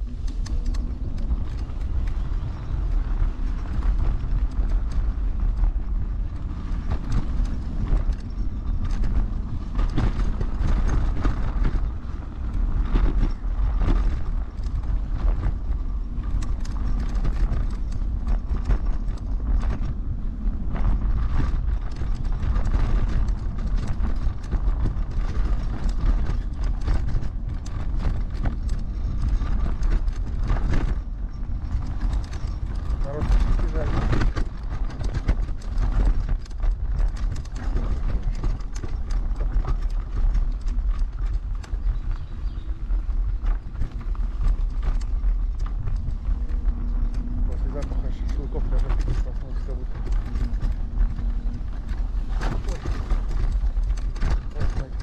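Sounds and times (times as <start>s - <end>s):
electric scooter rumbling: 0.0s - 55.0s
knocks and rattles over bumps: 0.0s - 55.0s.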